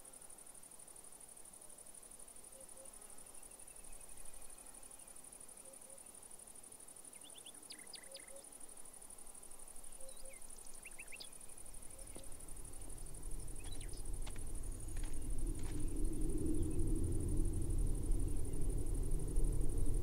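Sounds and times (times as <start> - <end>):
insect trill: 0.0 - 20.0
bird chirps: 7.1 - 8.5, 9.9 - 12.3, 13.4 - 14.0
low rumble: 12.4 - 20.0.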